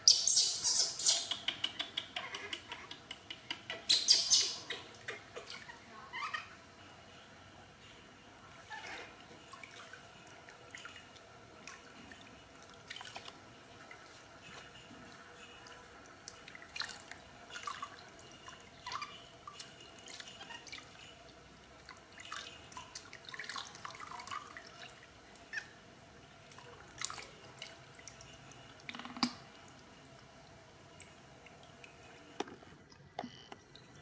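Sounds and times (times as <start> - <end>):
water dripping and splashing in basin: 8.6 - 34.0.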